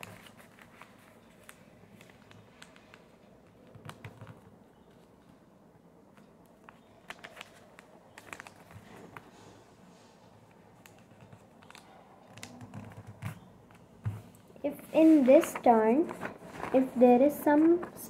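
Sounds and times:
paper being folded and creased: 0:00.0 - 0:04.4, 0:07.0 - 0:09.5, 0:10.5 - 0:13.5, 0:14.7 - 0:18.0.

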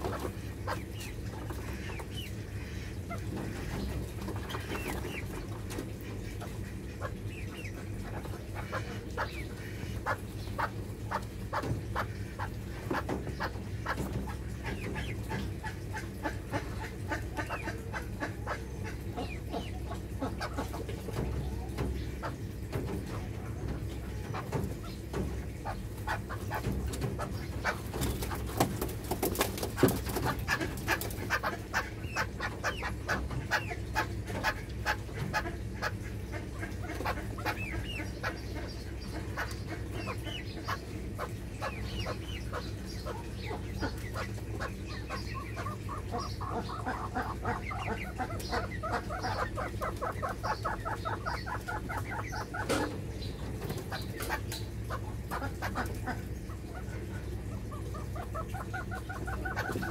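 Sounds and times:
chicken clucking: 0:00.0 - 0:59.9
steady low hum: 0:00.0 - 0:59.9
young partridges chirping: 0:00.0 - 0:59.9.

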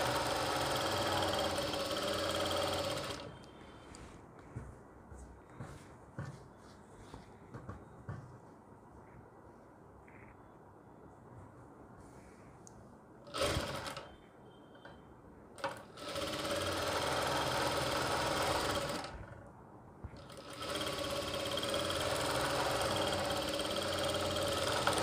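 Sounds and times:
sewing machine stitching: 0:00.0 - 0:03.4, 0:13.2 - 0:14.1, 0:15.6 - 0:19.4, 0:20.2 - 0:25.0.

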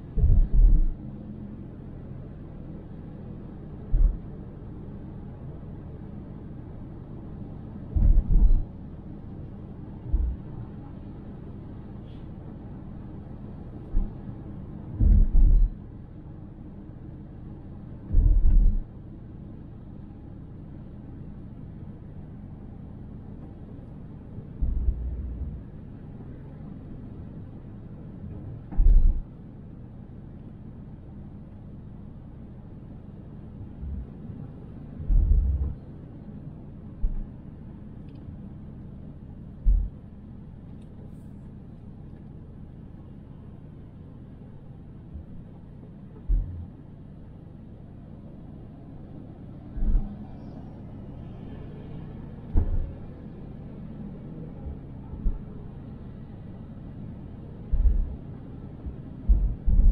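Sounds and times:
car road and engine rumble: 0:00.0 - 0:59.9
deep thump: 0:00.2 - 0:00.9, 0:03.9 - 0:04.2, 0:08.0 - 0:08.6, 0:10.1 - 0:10.4, 0:15.0 - 0:15.7, 0:18.1 - 0:18.8, 0:28.7 - 0:29.2, 0:35.0 - 0:35.8, 0:37.0 - 0:37.2, 0:39.6 - 0:39.9, 0:46.2 - 0:46.6, 0:52.5 - 0:52.9, 0:55.2 - 0:55.5, 0:57.7 - 0:58.2, 0:59.3 - 0:59.9.

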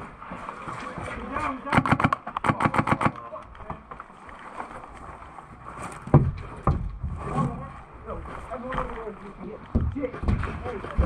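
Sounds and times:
airsoft gun firing: 0:01.7 - 0:03.2.

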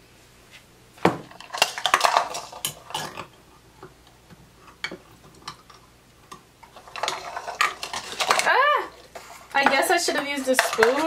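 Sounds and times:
plastic cups knocking glass jar: 0:09.6 - 0:11.0.

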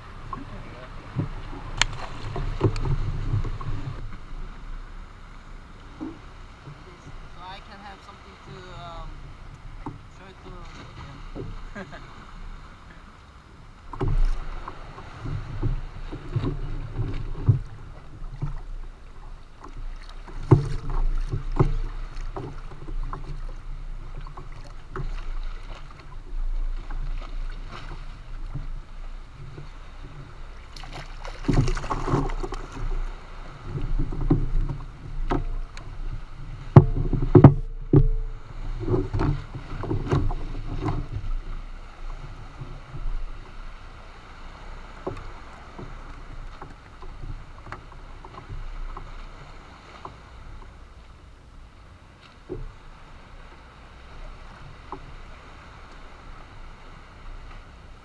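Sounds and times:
water slapping against boat hull: 0:00.0 - 0:51.2
gear knocking against boat: 0:00.2 - 0:04.5, 0:13.8 - 0:43.7.

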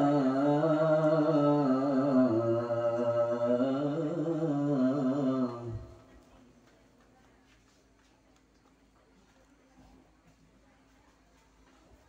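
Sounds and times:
man reciting melodically: 0:00.0 - 0:06.1.

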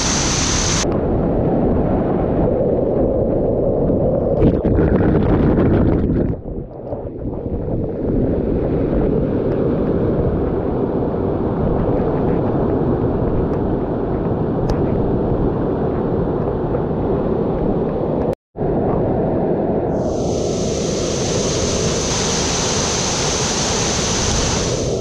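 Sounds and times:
water rushing over rocks: 0:00.0 - 0:00.8, 0:20.1 - 0:25.0.

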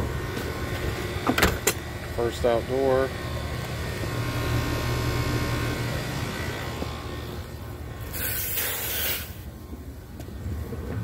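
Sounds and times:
air conditioner unit humming: 0:00.0 - 0:10.2
loud hiss: 0:08.0 - 0:09.5.

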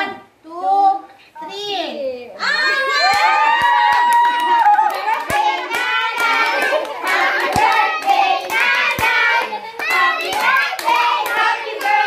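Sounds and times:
handclaps: 0:03.1 - 0:12.0
people singing and cheering: 0:03.2 - 0:12.0.

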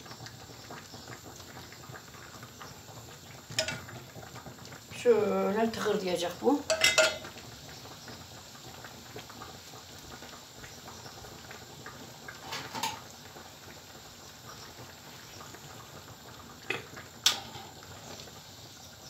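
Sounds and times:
syrup bubbling in a tray: 0:00.0 - 0:19.0.

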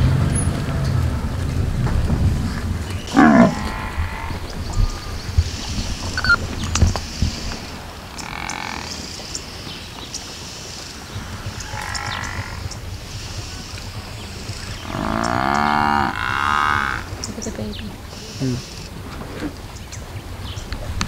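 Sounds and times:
buffalo moo-like calls: 0:02.8 - 0:19.6.

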